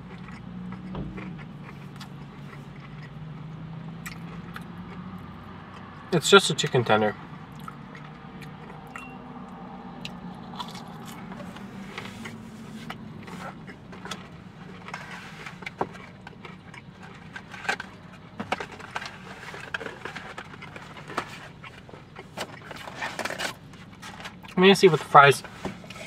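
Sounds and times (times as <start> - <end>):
person chewing: 0.0 - 6.0, 7.4 - 9.1, 10.0 - 22.8
food packaging rustling: 11.4 - 26.0.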